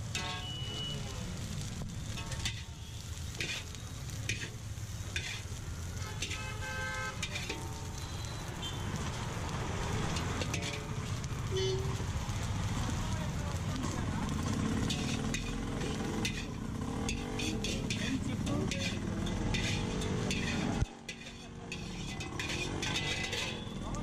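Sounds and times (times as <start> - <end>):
rice sizzling in a wok: 0.0 - 24.0
metal spatula scraping a pan: 0.1 - 0.7, 2.1 - 8.1, 10.0 - 11.0, 14.4 - 24.0.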